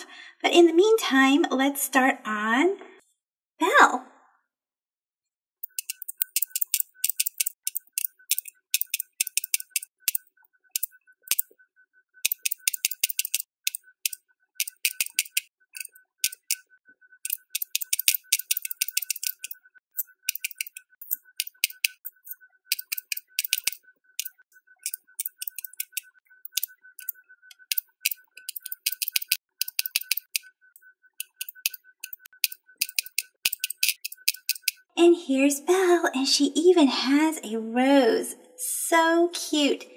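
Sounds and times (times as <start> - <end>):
bead dispenser pen clicking: 5.6 - 11.4, 12.2 - 16.6, 17.2 - 30.5, 31.2 - 34.8.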